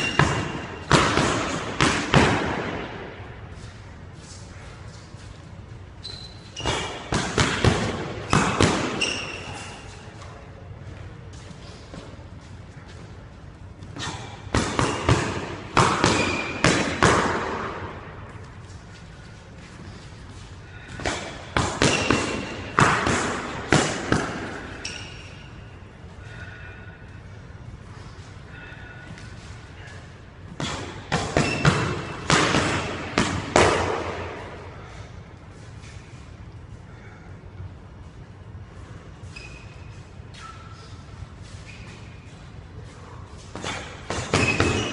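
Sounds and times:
boxing gloves hitting mitts: 0.0s - 3.2s, 6.6s - 10.4s, 13.8s - 18.1s, 20.9s - 25.0s, 30.5s - 34.6s, 43.5s - 44.9s.

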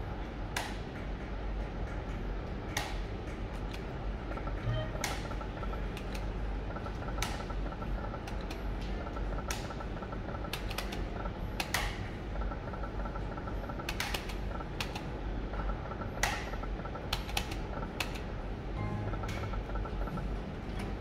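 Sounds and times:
slot machine reels clicking: 3.9s - 21.0s
repeating electronic tone: 4.6s - 5.1s
low hum: 18.6s - 21.0s.

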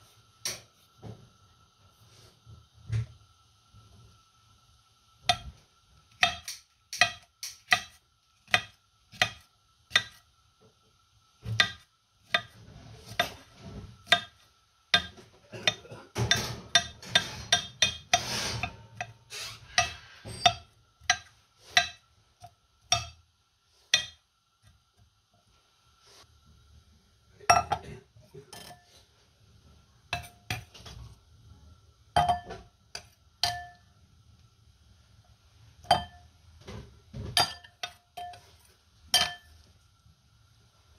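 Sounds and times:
knife chopping on stone board: 6.1s - 10.2s, 11.5s - 13.4s, 14.0s - 15.8s.

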